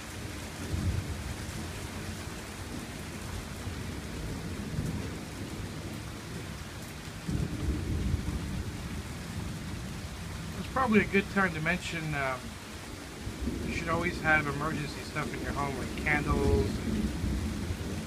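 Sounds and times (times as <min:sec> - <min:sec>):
rain hissing: 0:00.0 - 0:18.0
thunder rumbling: 0:07.2 - 0:18.0.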